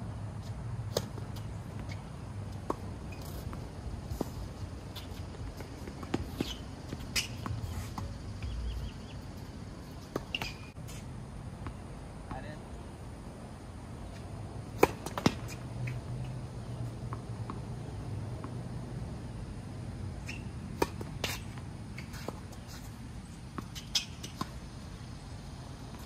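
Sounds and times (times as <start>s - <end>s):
shoes squeaking: 0.4s - 11.1s, 14.0s - 17.2s, 20.2s - 24.6s.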